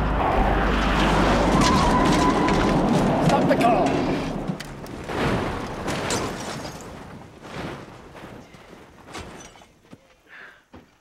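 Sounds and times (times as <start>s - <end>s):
car crashing and overturning: 0.4s - 8.3s.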